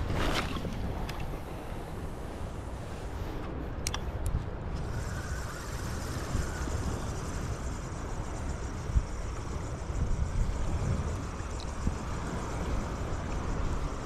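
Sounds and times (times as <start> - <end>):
shallow surf washing: 0.0 - 3.6
wind buffeting microphone: 0.0 - 14.0.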